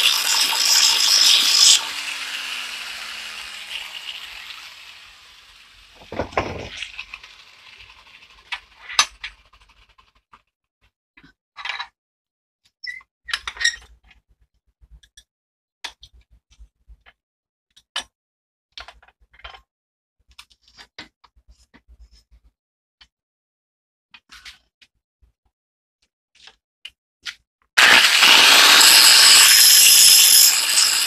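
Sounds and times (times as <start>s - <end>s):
metal scraping rasps: 0.0s - 4.9s, 27.8s - 31.0s.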